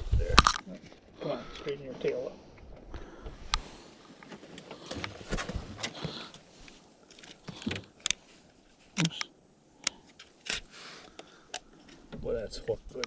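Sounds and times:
camera rustling: 3.5 - 9.2.

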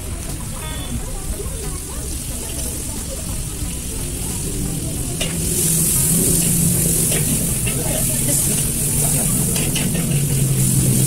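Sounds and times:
paste sizzling in hot oil: 2.0 - 11.0
metal spatula scraping wok: 5.2 - 11.0.

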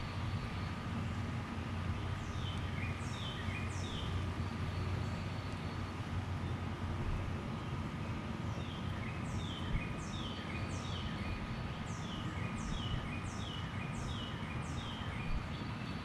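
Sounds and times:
bird chirping: 2.2 - 5.9.

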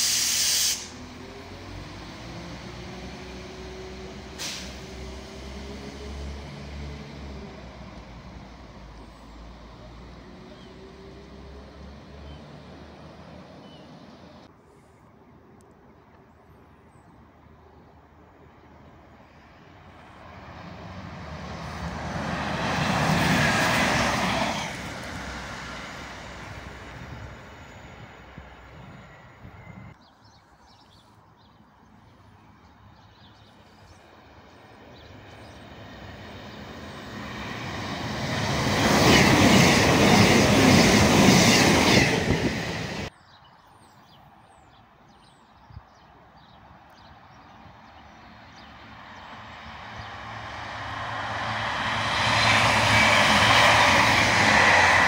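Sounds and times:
diesel trains passing: 0.0 - 14.6, 16.4 - 30.0, 31.0 - 43.3, 45.7 - 55.0
train wheels rushing: 35.8 - 43.1, 49.8 - 55.0.

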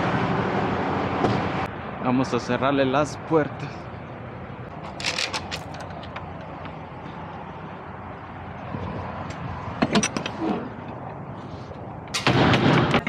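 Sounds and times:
metal door lock handle clanking: 4.8 - 6.8.

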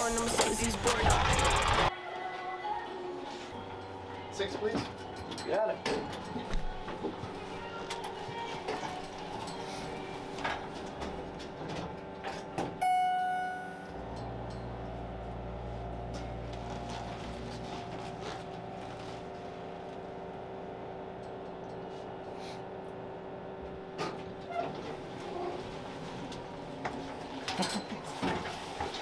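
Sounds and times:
elevator cab hum: 6.2 - 29.0
elevator chime: 12.8 - 14.1.

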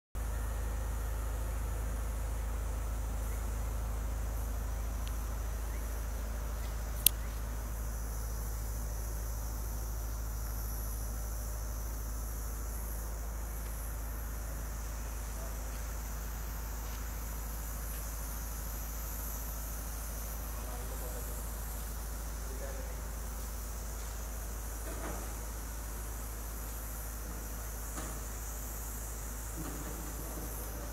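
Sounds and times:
low hum: 0.2 - 24.6
crickets chirring: 0.2 - 30.9
sharp click: 7.0 - 7.3.

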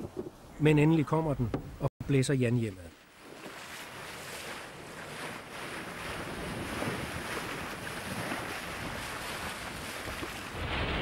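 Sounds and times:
water rushing along boat hull: 2.9 - 11.0
wind buffeting microphone: 4.8 - 11.0.

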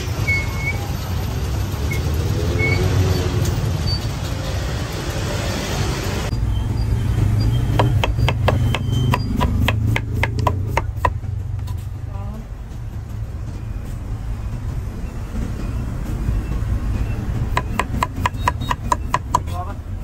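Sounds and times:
street traffic rumble: 0.0 - 20.0
knife chopping on cutting board: 7.7 - 11.2, 17.5 - 19.6.

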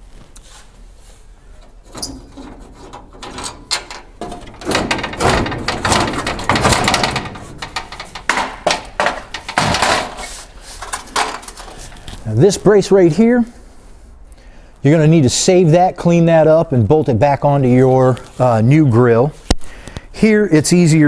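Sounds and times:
metal grille clattering against truck: 1.7 - 11.7.

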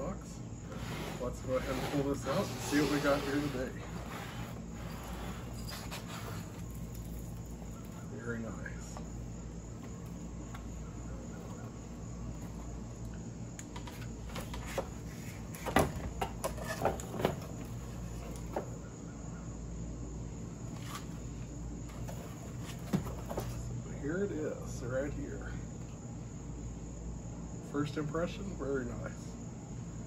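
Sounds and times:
insect chorus: 0.0 - 30.0
rustling cardboard packing: 0.7 - 7.7.

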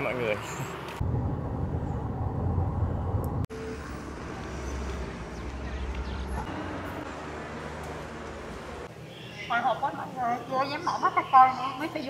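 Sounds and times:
car and road rumble: 0.0 - 8.9.

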